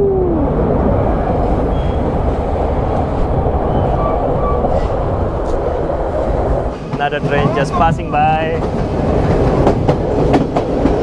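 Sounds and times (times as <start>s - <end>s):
passenger train rumbling on track: 0.0s - 11.0s.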